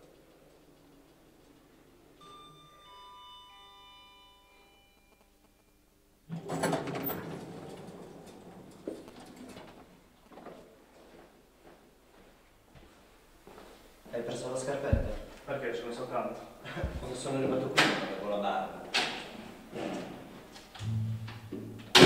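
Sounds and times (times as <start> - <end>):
sliding door rushing open: 6.3 - 9.8
knock: 14.9 - 15.2.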